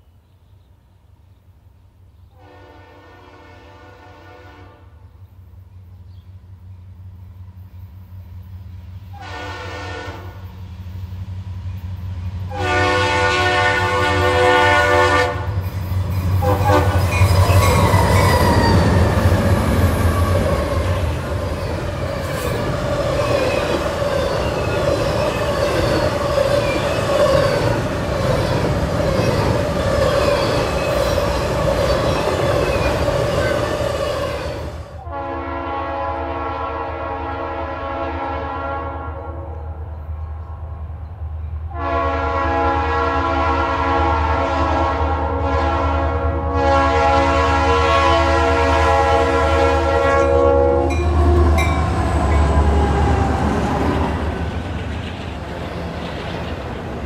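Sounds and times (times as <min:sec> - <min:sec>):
locomotive air horn: 0:02.3 - 0:05.0, 0:09.1 - 0:10.5, 0:12.5 - 0:15.6, 0:16.4 - 0:21.1, 0:34.2 - 0:39.9, 0:41.7 - 0:52.6
train wheels rumbling on rails: 0:05.2 - 0:35.1, 0:47.2 - 0:57.0.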